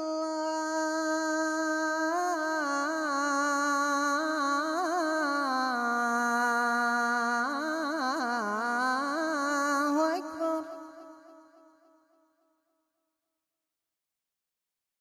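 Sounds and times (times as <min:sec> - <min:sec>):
person singing wordless melody: 0:00.0 - 0:11.6.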